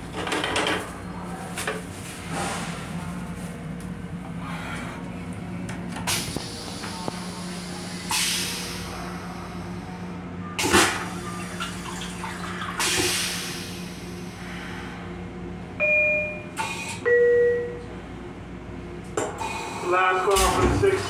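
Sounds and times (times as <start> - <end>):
toilet flushing: 10.6 - 14.1
two-note door chime: 17.1 - 17.8.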